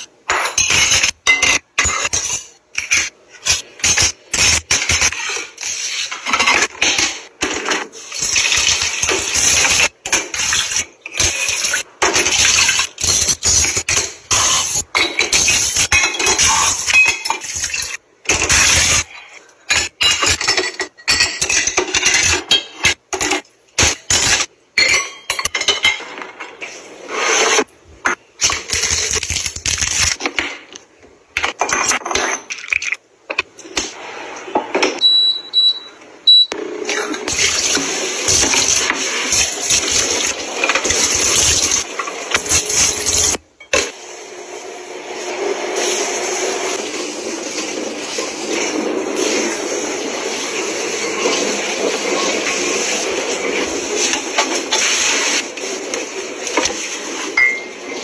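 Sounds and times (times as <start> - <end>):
dishes and glassware clinking: 0.2 - 3.6, 14.0 - 18.0, 19.7 - 23.5, 24.8 - 26.6, 57.4 - 57.8
short high beeps: 35.0 - 36.6.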